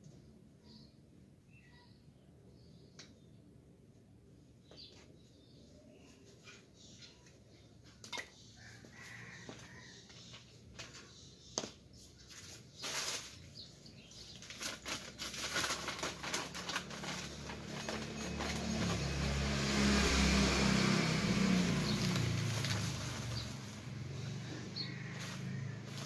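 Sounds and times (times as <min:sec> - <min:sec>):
small clicks of pots: 0:08.0 - 0:08.4
plastic sheeting rustling: 0:12.3 - 0:19.3, 0:21.2 - 0:24.1
passing vehicle engine: 0:16.2 - 0:26.0.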